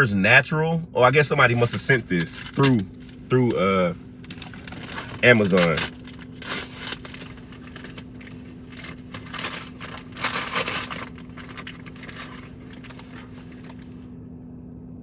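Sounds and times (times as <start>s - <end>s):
low hum: 0.0s - 15.0s
paper crinkling and tearing: 2.1s - 3.4s, 4.3s - 14.0s.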